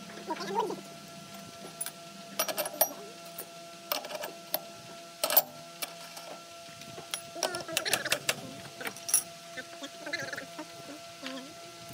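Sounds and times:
faint steady hum: 0.0s - 11.9s
metal parts clinking: 1.8s - 4.6s, 5.2s - 6.3s, 7.1s - 9.3s.

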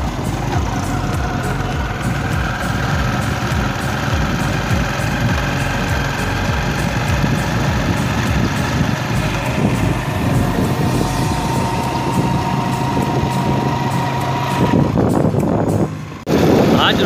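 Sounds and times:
steady high tone: 0.0s - 16.2s
motorcycle engine running: 0.0s - 17.0s
road rumble: 0.0s - 17.0s
wind on microphone: 6.6s - 17.0s.

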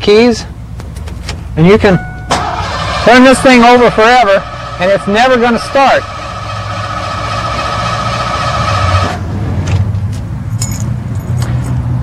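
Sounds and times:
starter motor cranking: 2.3s - 9.2s.

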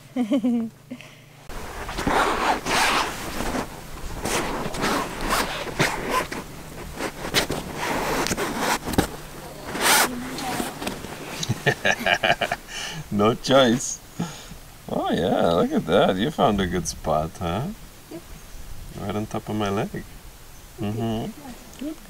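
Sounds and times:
hammock fabric rustling: 1.5s - 13.7s.

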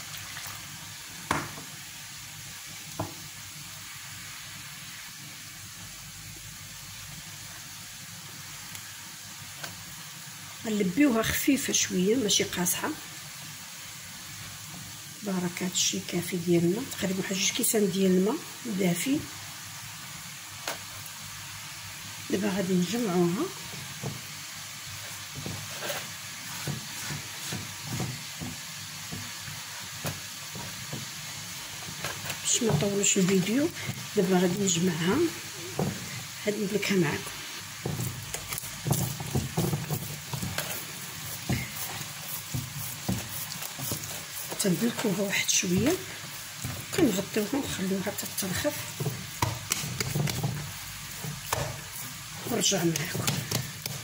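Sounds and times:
steady hiss: 0.0s - 54.0s
hands mixing dough: 22.3s - 54.0s
hands patting bread dough: 37.8s - 45.0s, 48.9s - 54.0s.

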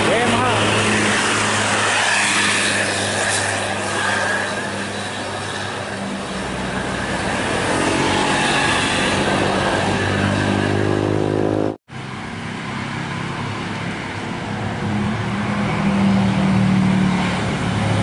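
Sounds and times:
bus passing close: 0.0s - 18.0s
road traffic engines: 0.0s - 18.0s.

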